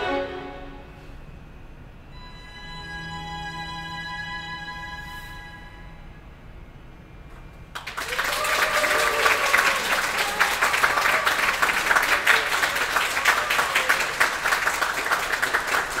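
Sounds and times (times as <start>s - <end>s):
string quartet: 0.0s - 0.9s
audience applause: 7.7s - 16.0s.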